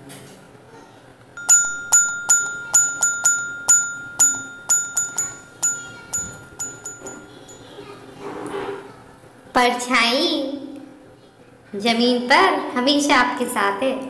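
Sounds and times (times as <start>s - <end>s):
bright chime strikes: 1.4s - 7.8s.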